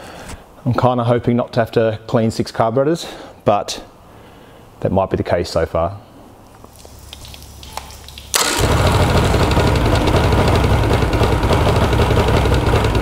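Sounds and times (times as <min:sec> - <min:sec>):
outboard motor starting and running: 0:08.3 - 0:13.0.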